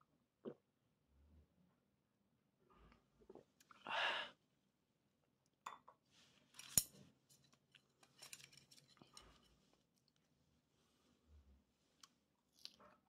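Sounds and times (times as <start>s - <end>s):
breathy exhale: 3.9s - 4.3s.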